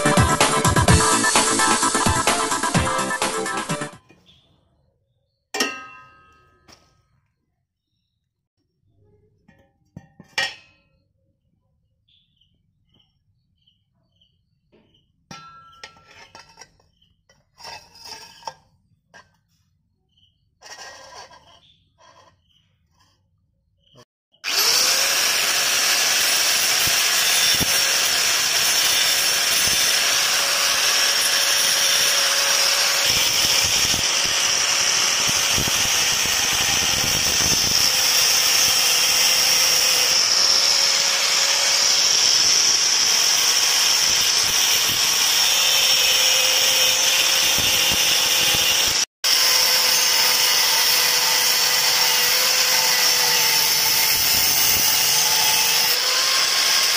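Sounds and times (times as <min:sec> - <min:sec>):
angle grinder cutting steel: 0:23.8 - 0:56.9.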